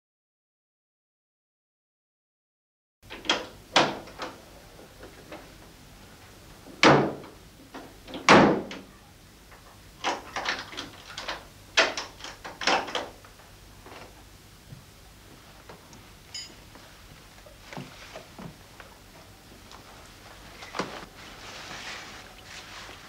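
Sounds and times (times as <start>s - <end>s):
door clicks and knocks: 8.1s - 8.8s.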